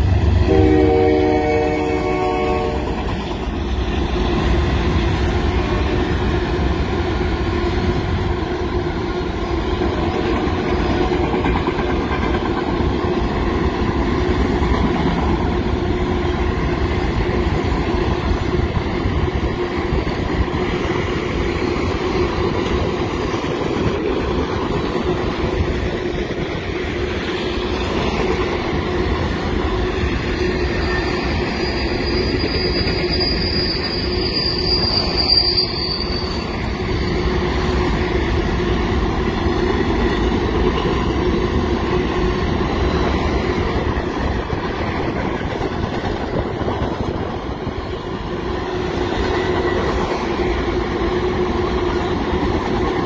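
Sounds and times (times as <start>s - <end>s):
train wheels rumbling on rails: 0.0s - 53.0s
high-pitched wheel squeal: 29.9s - 38.0s.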